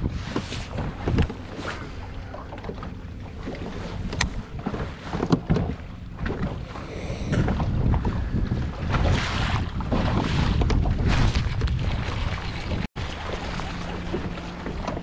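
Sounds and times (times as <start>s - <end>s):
water lapping at boat: 0.0s - 15.0s
wind buffeting microphone: 3.2s - 13.2s.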